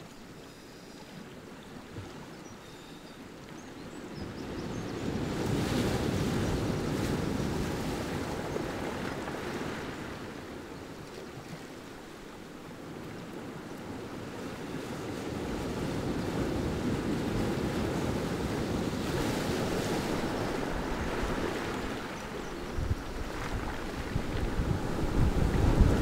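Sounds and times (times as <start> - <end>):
wind: 0.0 - 26.0
waves breaking on rocks: 5.0 - 10.5, 15.2 - 26.0
surf washing up pebble beach: 15.3 - 26.0.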